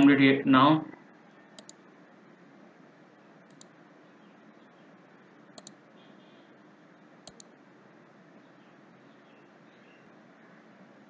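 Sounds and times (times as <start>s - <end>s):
faint room hiss: 0.0s - 11.0s
computer mouse clicks: 1.6s - 1.8s, 3.5s - 3.8s, 5.6s - 5.8s, 7.2s - 7.6s.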